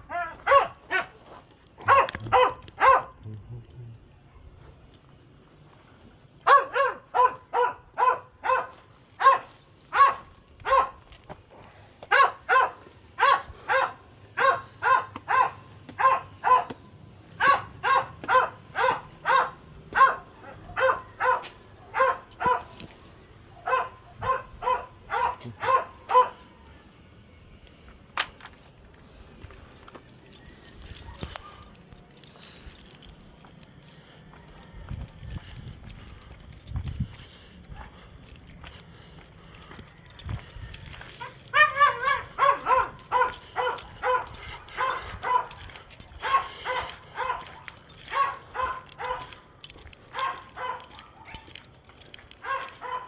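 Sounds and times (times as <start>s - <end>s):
dog barking: 0.0s - 1.2s, 1.8s - 3.2s, 6.4s - 11.0s, 12.1s - 16.8s, 17.4s - 22.8s, 23.6s - 26.6s, 41.2s - 49.4s, 50.1s - 51.6s, 52.4s - 53.0s.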